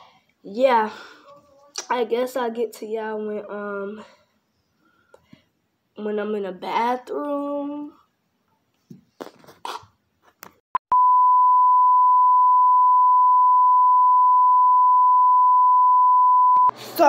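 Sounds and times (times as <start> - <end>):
steady test tone beep: 10.9 - 16.7.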